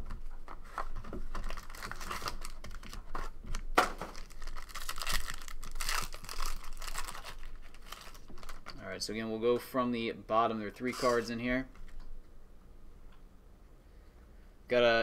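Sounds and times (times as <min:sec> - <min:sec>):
foil wrapper crinkling and tearing: 0:01.4 - 0:08.8.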